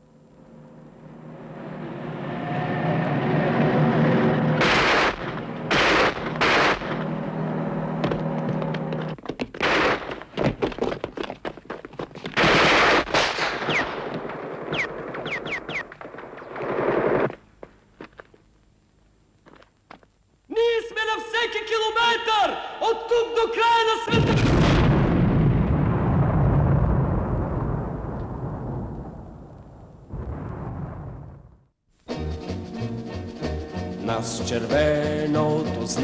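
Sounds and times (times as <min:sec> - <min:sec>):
low steady drone: 0:00.0 - 0:09.0
loud explosion blasts: 0:04.6 - 0:07.0, 0:24.1 - 0:31.7
rapid automatic gunfire: 0:04.6 - 0:07.0, 0:12.4 - 0:14.1.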